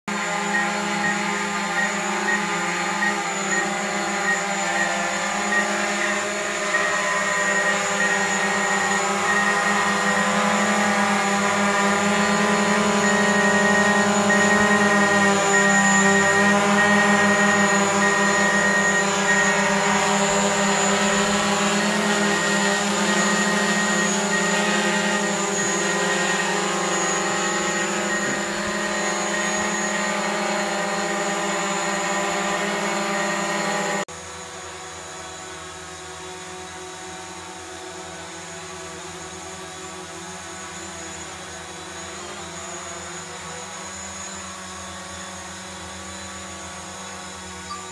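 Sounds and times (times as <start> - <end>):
drone propellers humming: 0.1 - 47.9.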